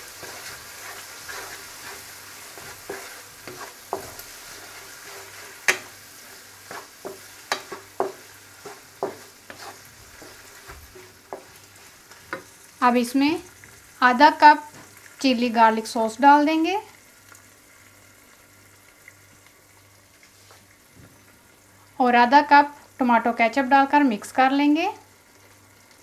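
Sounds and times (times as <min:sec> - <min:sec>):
spatula scraping a pan: 0:00.0 - 0:12.6
food sizzling in a wok: 0:00.0 - 0:26.0.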